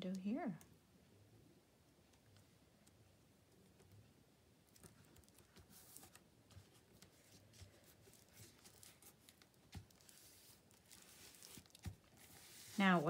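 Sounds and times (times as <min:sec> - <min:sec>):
paper rustling and tapping: 0:04.7 - 0:13.0.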